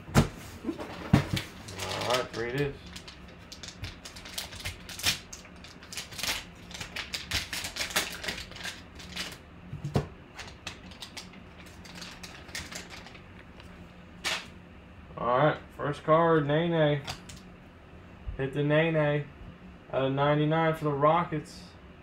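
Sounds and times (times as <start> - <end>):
foil pack crinkling and tearing: 1.3 - 9.4, 10.3 - 13.3.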